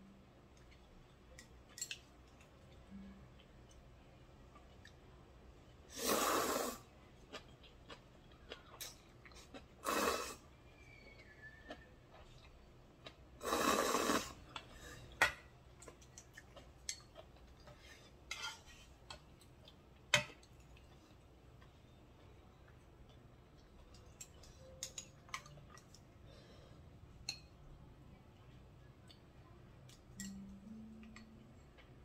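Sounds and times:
slurping noodles: 6.0s - 6.8s, 9.8s - 10.4s, 13.4s - 14.4s.

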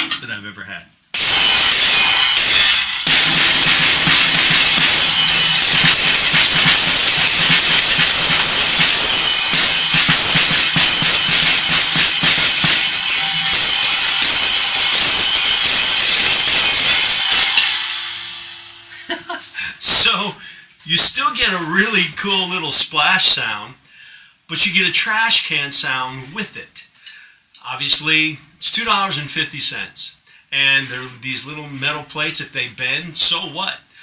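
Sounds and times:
drum kit playing: 0.0s - 0.3s, 1.1s - 20.3s
trashy splash cymbal crashes: 1.2s - 20.1s.

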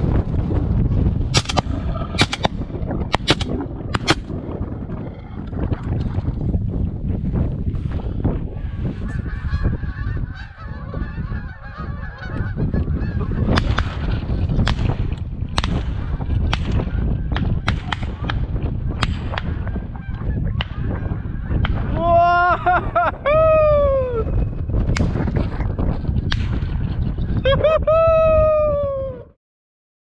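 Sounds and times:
wind buffeting microphone: 0.0s - 29.4s
sharp clicks: 1.4s - 4.3s
geese honking: 8.7s - 13.6s.

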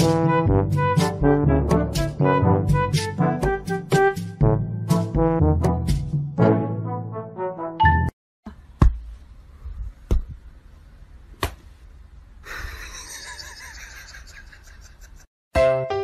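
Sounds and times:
sharp smacks: 11.4s - 11.7s.

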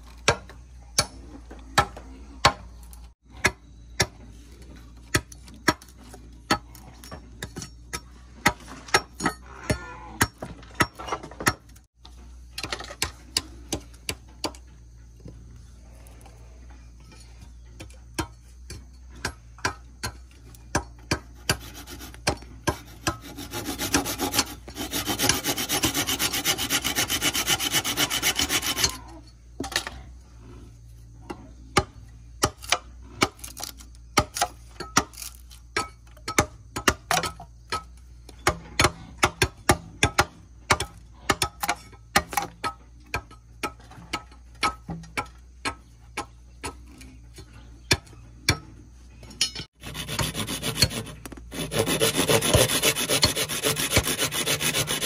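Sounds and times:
blade chipping bamboo: 18.2s - 29.0s, 49.7s - 55.0s
handsaw rasping through bamboo: 21.2s - 29.0s, 49.8s - 55.0s.

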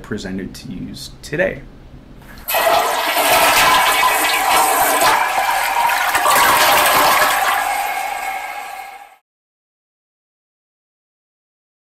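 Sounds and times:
toilet flushing: 2.3s - 9.2s.

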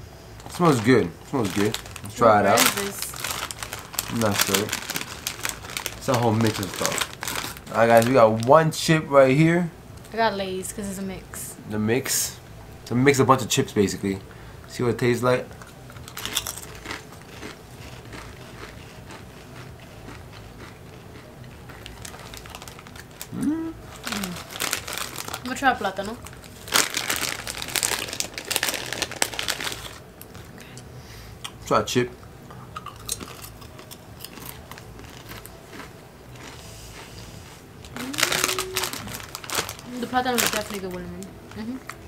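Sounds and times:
chewing crunchy chips: 0.4s - 8.5s, 15.6s - 25.5s, 26.2s - 31.6s, 32.5s - 41.0s.

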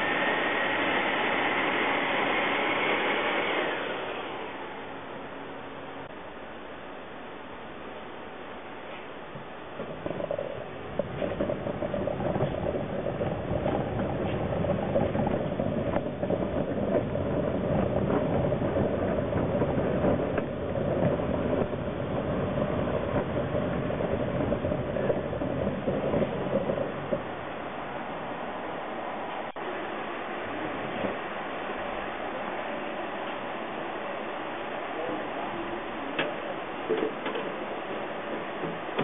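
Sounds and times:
trolley rolling and rattling: 9.8s - 27.6s.

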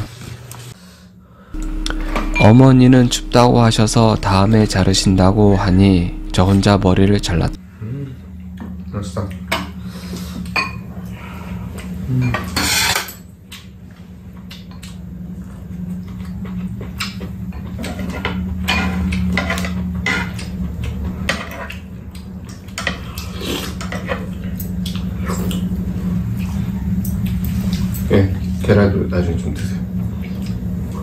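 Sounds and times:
steady low hum: 1.2s - 12.2s, 21.9s - 31.0s.

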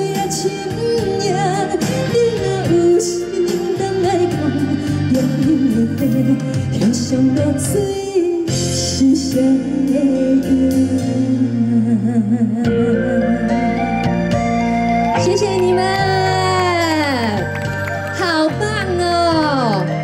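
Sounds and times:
woman singing with vibrato: 0.0s - 14.1s
instrumental accompaniment: 12.6s - 20.0s.

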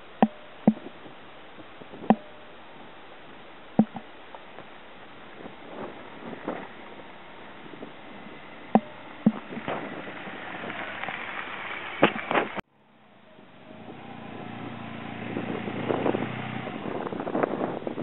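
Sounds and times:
wind buffeting microphone: 0.6s - 12.6s, 13.2s - 18.0s
sharp knocks: 2.1s - 2.4s, 3.8s - 4.0s, 8.7s - 9.4s
motorcycle engine passing: 6.2s - 18.0s.

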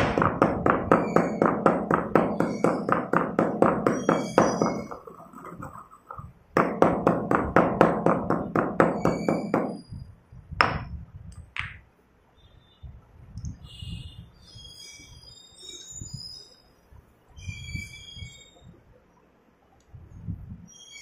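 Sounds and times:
pestle pounding in stone mortar: 0.0s - 5.8s, 6.6s - 9.8s.

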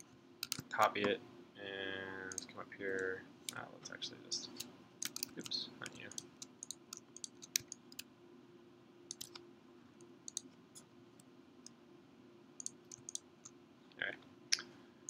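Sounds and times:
low steady hum: 0.0s - 15.0s
mouse and keyboard clicks: 4.6s - 8.1s, 9.1s - 9.4s.

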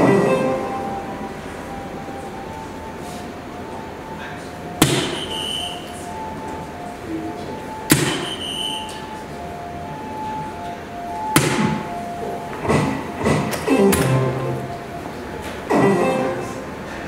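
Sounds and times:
faint looping electronic tune: 0.0s - 16.9s
darts hitting electronic dartboard: 4.8s - 5.7s, 7.9s - 8.9s, 11.4s - 11.9s.

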